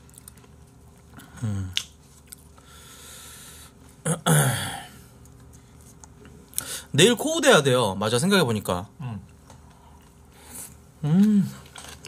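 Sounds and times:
person chewing: 0.0 - 2.6
person humming: 1.2 - 1.8, 11.0 - 11.6.

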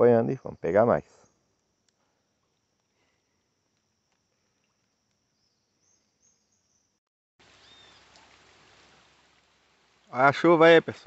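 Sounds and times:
rain falling on a river: 7.4 - 11.0.

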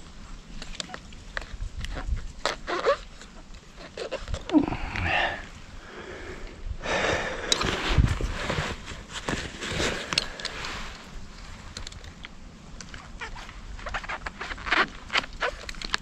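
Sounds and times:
leaves and twigs rustling and cracking: 0.0 - 6.4, 7.4 - 16.0
person breathing hard through nose: 4.5 - 8.8, 9.8 - 11.1.

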